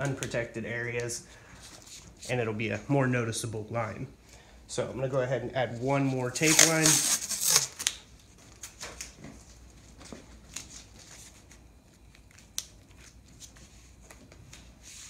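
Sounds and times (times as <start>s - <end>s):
tape crinkling and rustling: 6.0s - 14.8s
tape ripping off roll: 6.4s - 8.0s.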